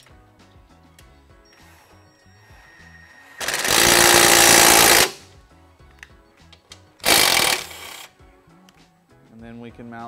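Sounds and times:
impact driver running: 3.4s - 5.2s, 7.0s - 8.1s.

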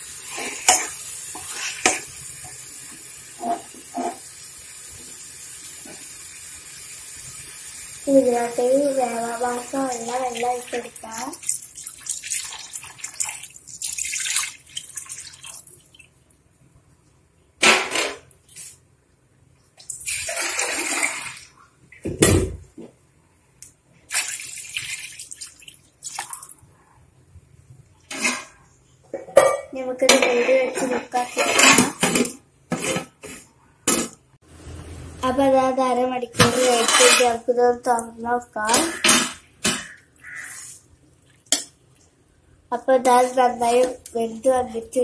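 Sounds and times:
water splashing into a pot: 0.2s - 16.2s, 19.8s - 21.6s, 24.1s - 26.6s.

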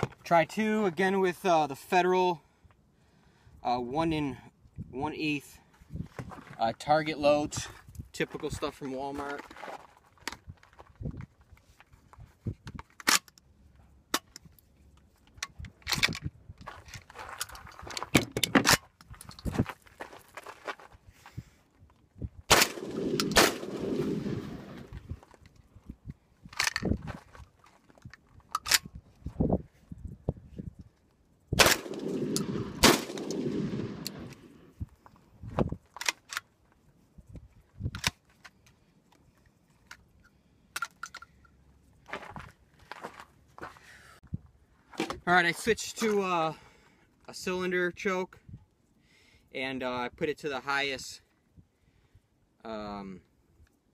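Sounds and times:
metallic clicks of gun action: 12.6s - 13.5s, 14.1s - 19.5s, 22.5s - 23.7s, 26.5s - 27.0s, 28.0s - 29.0s, 31.6s - 34.5s, 35.9s - 36.5s, 37.9s - 39.2s, 39.8s - 41.6s
shotgun shots with echo: 22.5s - 24.8s, 31.6s - 34.4s.

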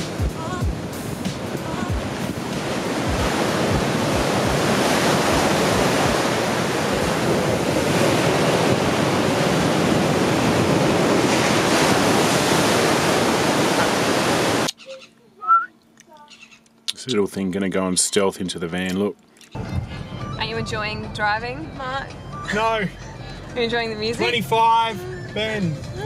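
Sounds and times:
surf breaking on beach: 0.0s - 14.7s
wind on microphone: 0.0s - 14.7s.

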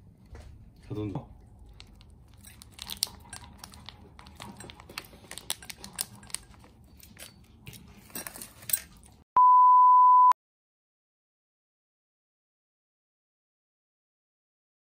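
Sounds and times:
plastic packet crinkling: 1.6s - 7.3s
high censor bleep: 9.4s - 10.4s.

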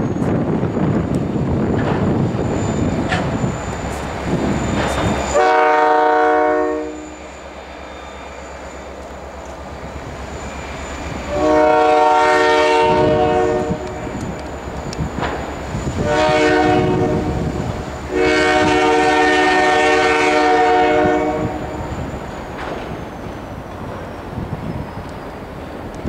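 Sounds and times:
locomotive air horn blasts: 5.3s - 7.2s, 11.2s - 14.2s, 16.0s - 21.9s.

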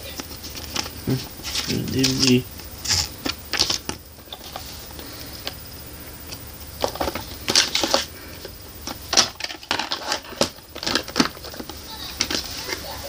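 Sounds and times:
steady hiss: 0.0s - 13.0s
plastic case clicking and rubbing: 6.8s - 12.6s.

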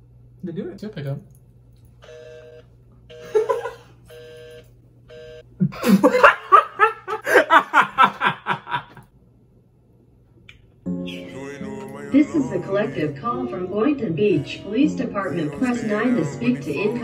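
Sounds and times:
man laughing hard: 3.3s - 3.9s, 5.6s - 9.0s.

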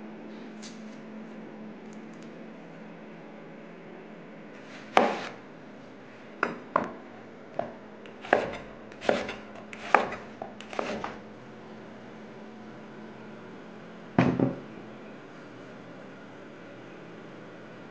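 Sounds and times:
knife chopping on wooden board: 4.8s - 5.4s, 7.6s - 11.2s.

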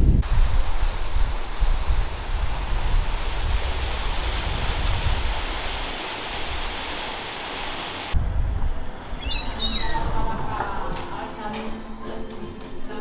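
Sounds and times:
wind buffeting microphone: 0.0s - 6.9s, 8.1s - 11.0s
water cascading down fountain: 0.2s - 8.2s
short high squeaks: 9.2s - 10.6s.

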